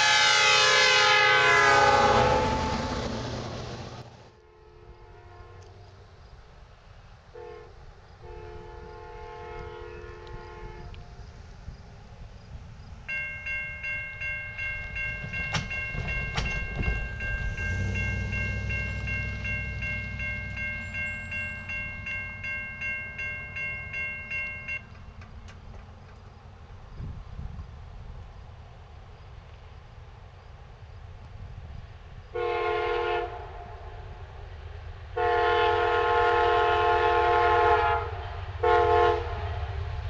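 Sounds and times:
crossing warning bell ringing: 0.0 - 3.2, 13.0 - 25.6
distant locomotive horn: 0.0 - 5.9, 7.3 - 11.4, 13.1 - 25.0, 32.3 - 34.2, 35.1 - 39.8
van rolling over crossing knocks: 15.2 - 19.4.

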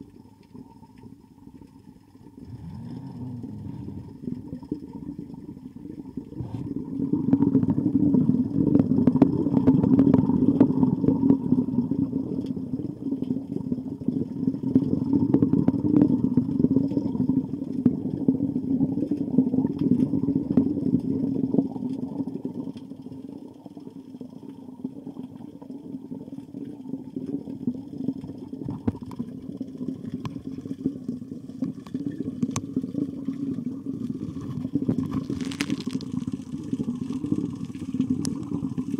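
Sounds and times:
underwater crackling and clicks: 0.0 - 38.9
muffled underwater rumble: 0.6 - 38.9.

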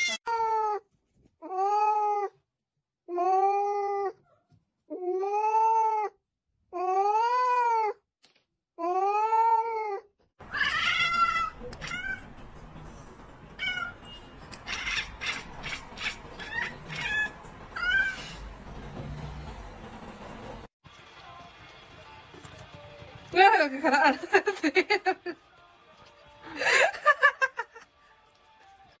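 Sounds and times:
cat meowing: 0.0 - 0.8, 4.9 - 6.2, 8.9 - 12.3, 13.6 - 18.4
cat chirping and chattering: 13.6 - 18.4.

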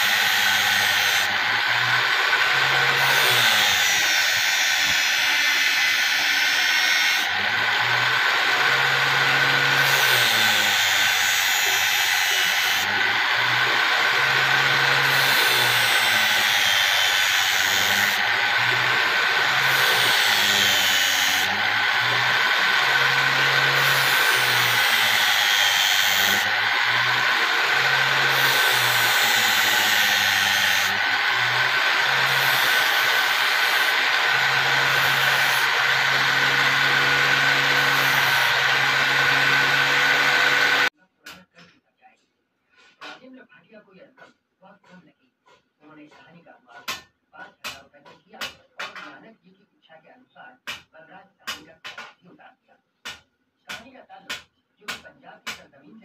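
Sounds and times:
angle grinder grinding steel: 0.0 - 41.0.

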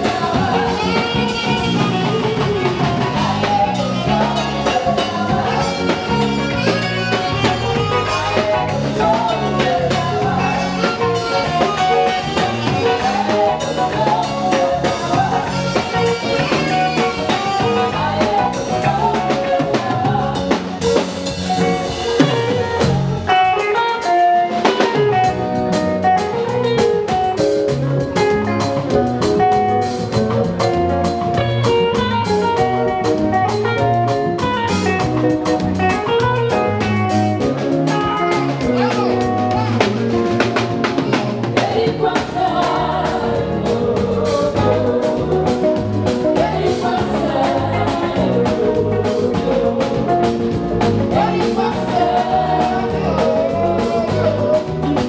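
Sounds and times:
drum kit beat: 0.0 - 55.0
electric guitar: 0.0 - 55.0.

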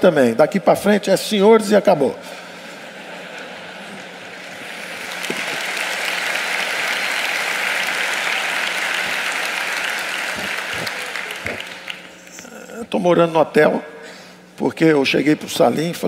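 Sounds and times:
large audience applauding: 3.4 - 12.3.

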